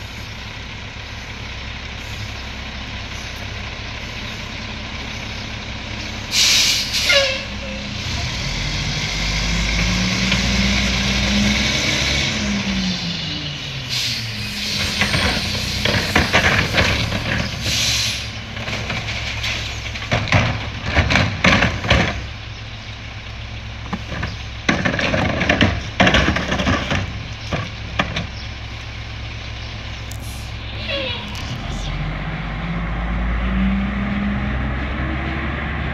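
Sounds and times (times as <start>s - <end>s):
diesel engine idling: 0.0s - 35.9s.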